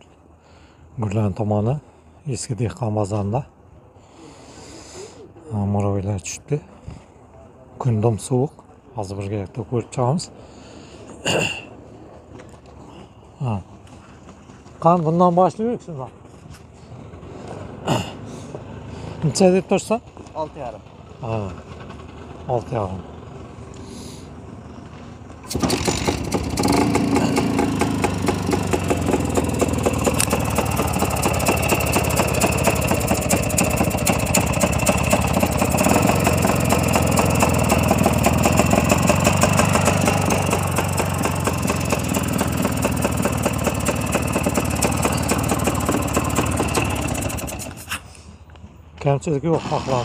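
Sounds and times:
motorcycle engine idling: 20.9s - 47.9s.

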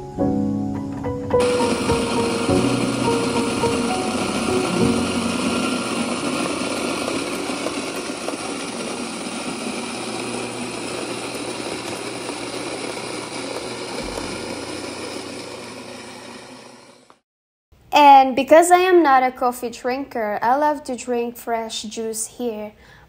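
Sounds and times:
coffee grinder grinding: 1.4s - 17.2s.

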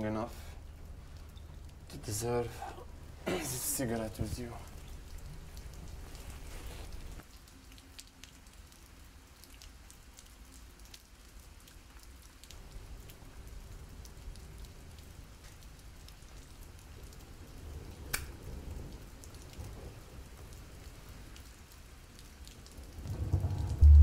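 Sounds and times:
rain falling steadily: 0.0s - 24.0s
raindrop ticks: 0.0s - 24.0s
low rumble: 23.0s - 24.0s.

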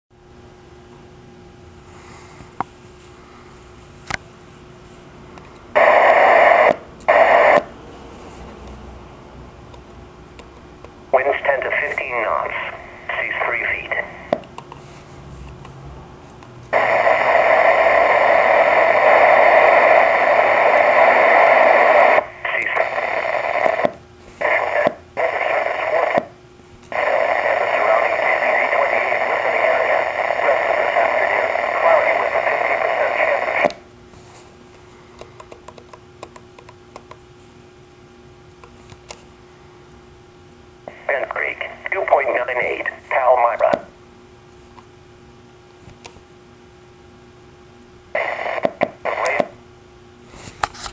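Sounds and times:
radio static hiss: 5.7s - 7.8s, 11.0s - 14.4s, 16.7s - 34.5s, 40.8s - 44.0s, 48.1s - 49.7s.

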